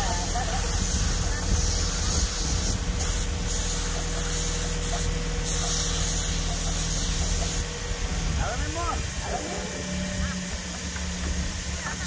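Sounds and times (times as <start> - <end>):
spray gun hissing: 0.0 - 7.9
motor humming: 0.0 - 12.0.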